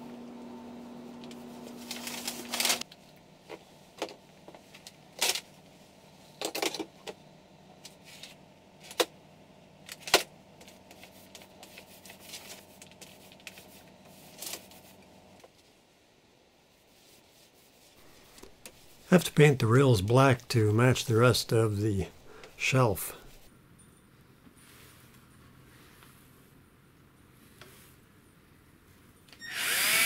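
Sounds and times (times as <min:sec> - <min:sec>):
paper rustling: 0:01.6 - 0:02.9, 0:10.6 - 0:14.9.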